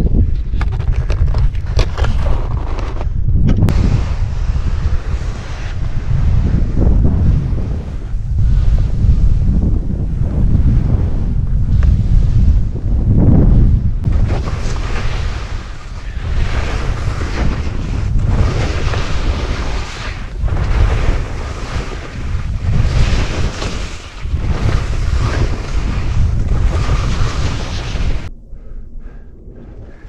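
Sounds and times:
wind noise on microphone: 0.0s - 30.0s
skis scraping on snow: 3.7s - 9.4s, 14.1s - 28.3s.

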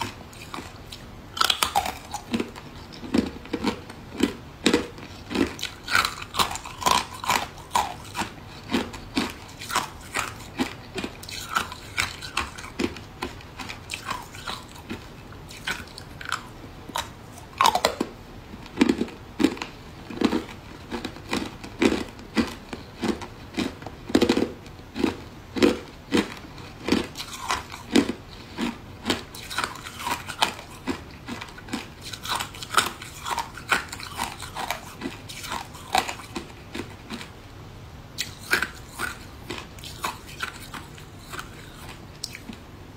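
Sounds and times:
ice crunching between teeth: 0.0s - 37.3s, 38.2s - 42.6s.

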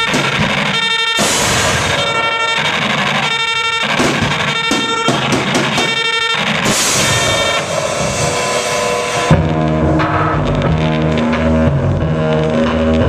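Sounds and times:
loud live band music: 0.0s - 13.0s.

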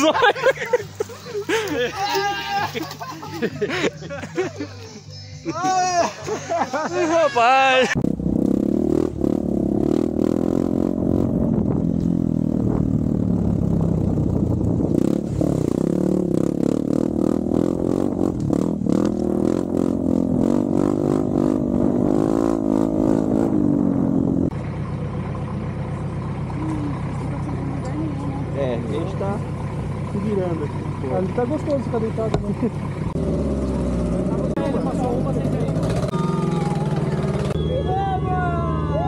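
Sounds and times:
vehicle rattling: 0.0s - 39.0s
vehicle engine revving: 7.8s - 37.9s.

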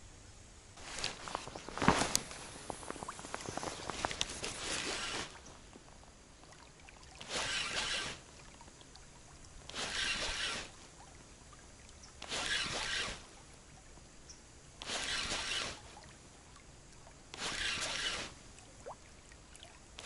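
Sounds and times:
scattered clicks and rustling: 0.9s - 5.3s.

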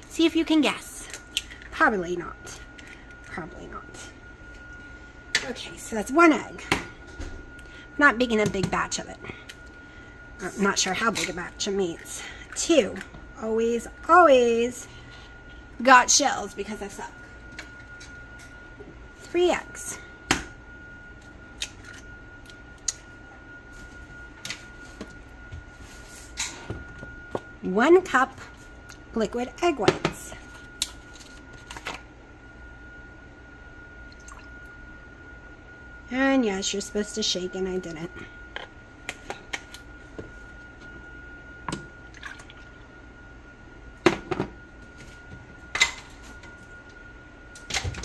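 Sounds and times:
liquid pouring and dripping: 34.1s - 34.5s, 42.1s - 42.9s.

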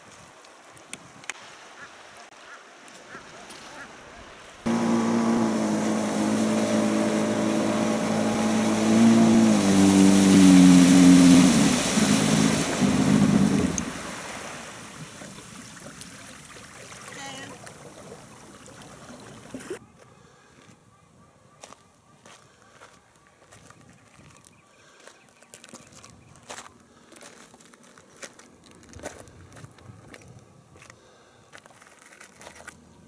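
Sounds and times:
faint wash of water: 1.2s - 19.8s
jet ski engine running: 4.7s - 15.2s.

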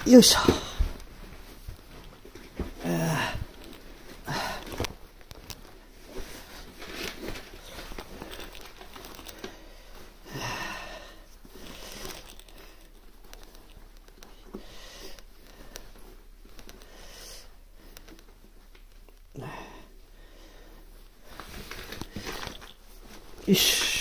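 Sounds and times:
clothing and boots rustling: 0.0s - 10.3s, 20.8s - 24.0s.

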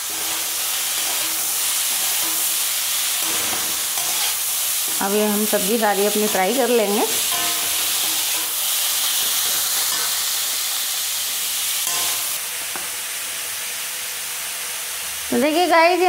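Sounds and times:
vegetables sizzling in hot oil: 0.0s - 16.0s
metal spoon scraping and tapping: 7.2s - 8.6s.

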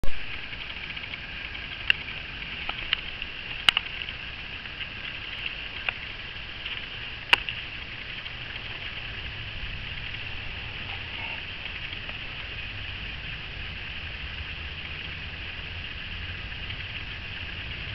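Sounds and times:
sharp clicks: 0.0s - 4.2s
high-pitched insect chorus: 0.1s - 17.9s.

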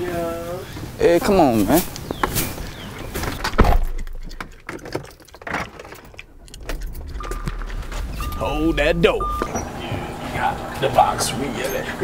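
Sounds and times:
low rumble: 6.0s - 10.8s
car door shutting: 6.6s - 10.2s.

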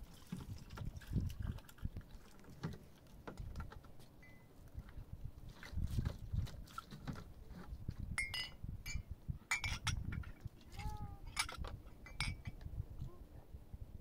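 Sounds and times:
glasses clinking: 8.2s - 10.2s, 11.2s - 12.6s.

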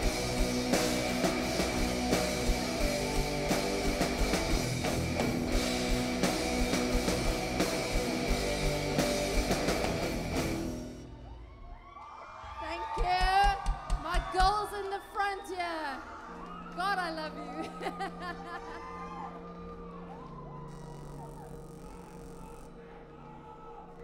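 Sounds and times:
drum kit beat: 0.0s - 11.0s
distorted electric guitar: 0.0s - 11.1s.

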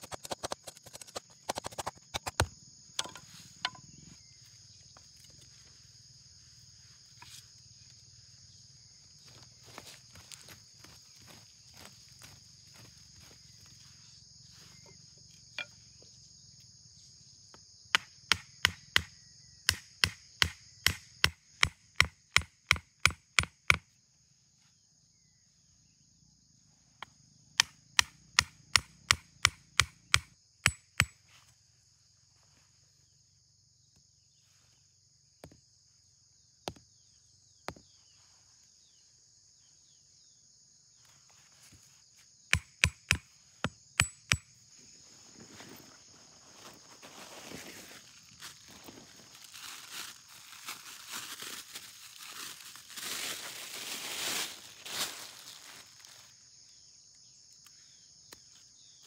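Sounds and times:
insects droning: 0.0s - 59.0s
machete striking wood: 0.1s - 3.8s, 18.0s - 19.1s, 19.7s - 23.8s, 27.6s - 31.2s, 42.5s - 44.5s.

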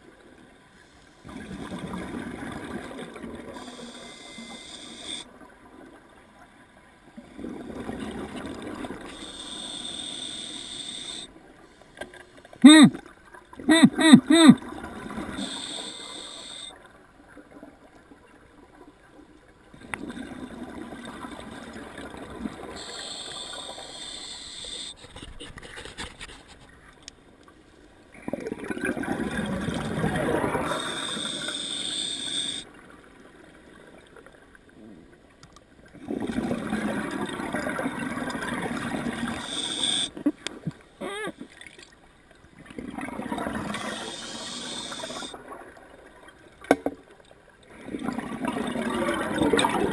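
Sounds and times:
hissing regulator inhalations: 3.6s - 5.2s, 9.1s - 11.3s, 15.3s - 16.7s, 22.8s - 25.0s, 30.7s - 32.6s, 39.2s - 40.1s, 43.8s - 45.4s.

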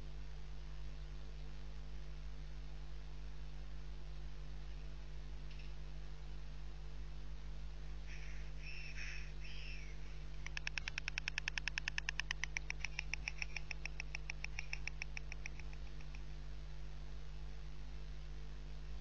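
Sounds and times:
electrical hum: 0.0s - 19.0s
short bird calls: 8.0s - 16.2s
stork bill-clattering: 10.4s - 16.2s.

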